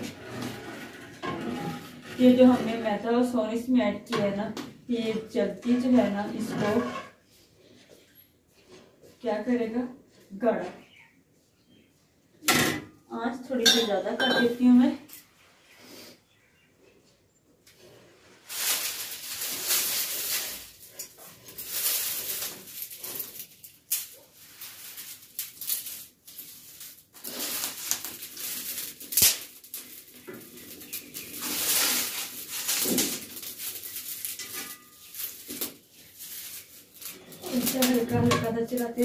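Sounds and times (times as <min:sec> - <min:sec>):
wood fire: 0:18.4 - 0:39.0
twigs cracking and snapping: 0:18.6 - 0:39.0.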